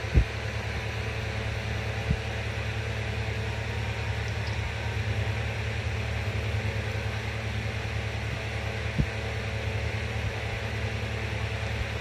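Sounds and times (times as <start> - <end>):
low mechanical hum with hiss: 0.0 - 12.0.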